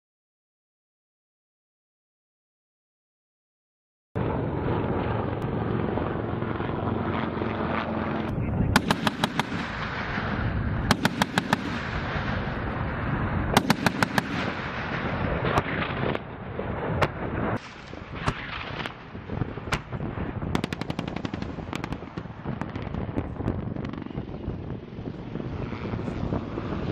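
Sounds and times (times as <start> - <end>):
helicopter rotor and turbine hum: 4.2 - 26.9
rapid cannon fire: 8.7 - 12.8, 13.4 - 24.8.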